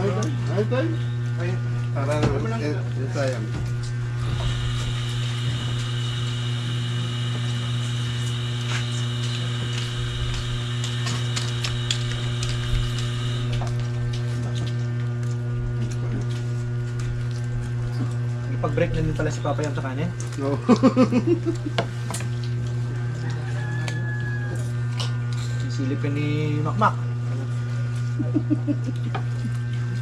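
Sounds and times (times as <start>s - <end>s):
steady low hum: 0.0s - 23.5s
high even whine: 3.5s - 14.5s.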